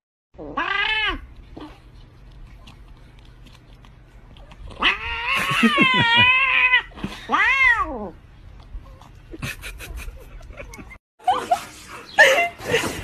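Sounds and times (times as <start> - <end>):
cat yowling: 0.4 - 1.2, 4.7 - 8.2
cat meowing: 4.7 - 8.1.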